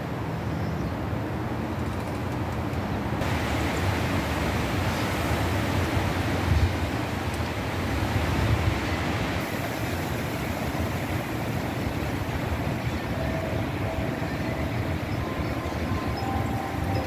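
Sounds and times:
wind rushing over microphone: 0:03.2 - 0:17.0
metal wind chime tones: 0:13.1 - 0:17.0.

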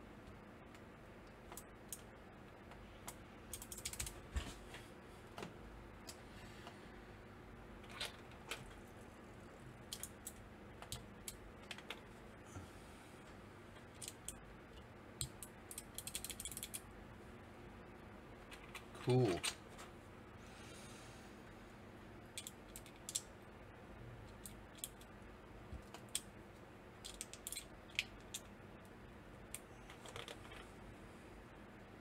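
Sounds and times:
plastic keycaps clicking: 0:27.0 - 0:28.5.

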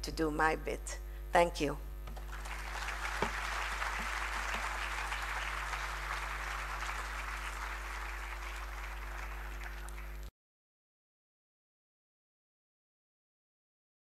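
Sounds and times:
faint low electrical hum: 0:00.0 - 0:10.3
audience applauding: 0:02.2 - 0:10.3.

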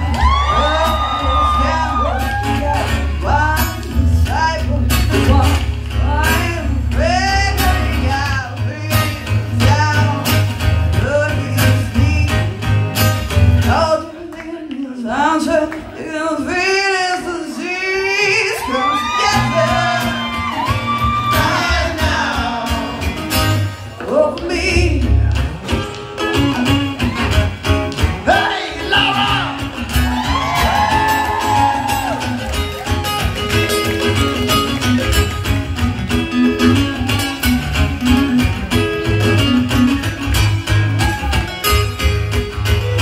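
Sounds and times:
acoustic guitars: 0:00.0 - 0:43.0
bass: 0:00.0 - 0:43.0
voices singing: 0:17.6 - 0:23.2, 0:28.2 - 0:29.8.

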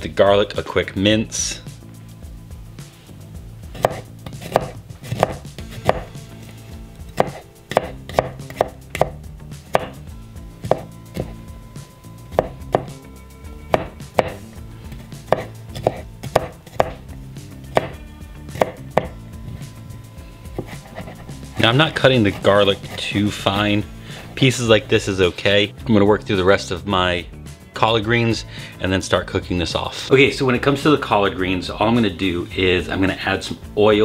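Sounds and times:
knife chopping on cutting board: 0:03.7 - 0:06.2, 0:07.1 - 0:10.0, 0:10.6 - 0:11.4, 0:12.3 - 0:13.0, 0:13.7 - 0:17.1, 0:17.7 - 0:19.2, 0:20.5 - 0:21.7.

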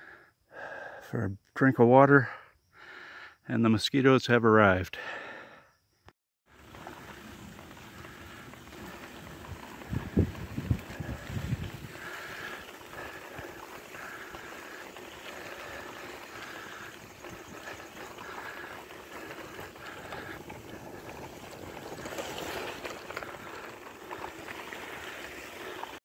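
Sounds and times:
bicycle tyres on gravel: 0:06.5 - 0:26.0.

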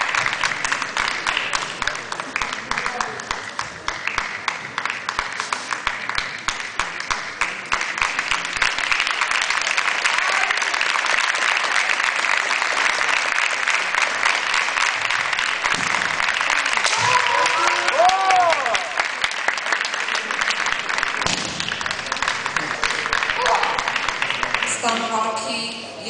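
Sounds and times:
spectators applauding: 0:00.0 - 0:25.1.

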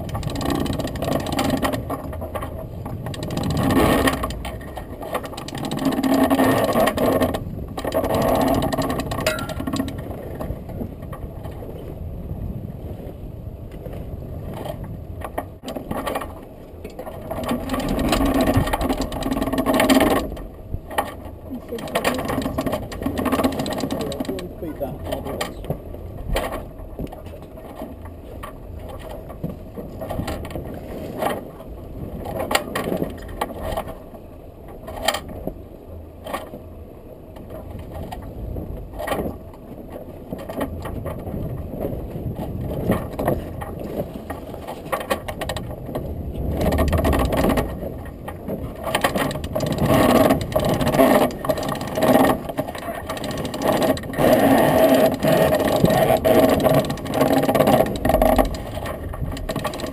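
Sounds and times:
wind and sea noise: 0:00.0 - 0:59.9
rigging hardware clicking: 0:07.8 - 0:10.2.

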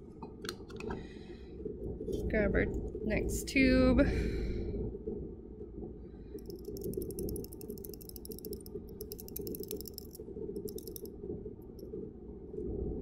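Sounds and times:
steady low hum: 0:00.0 - 0:13.0
fast fine clicking: 0:06.4 - 0:11.1.

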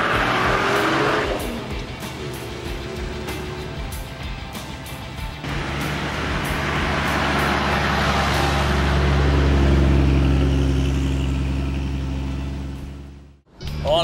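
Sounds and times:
vehicle driving past on sand: 0:05.4 - 0:13.3.

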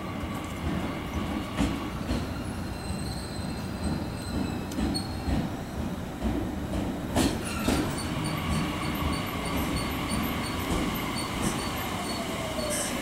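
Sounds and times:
train rumble: 0:00.0 - 0:13.0
high brake squeal: 0:02.6 - 0:05.3, 0:07.4 - 0:13.0.

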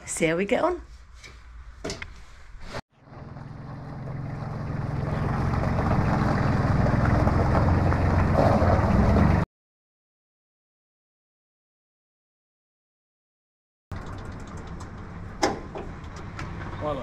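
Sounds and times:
tractor engine running: 0:03.0 - 0:09.4, 0:13.9 - 0:17.0.

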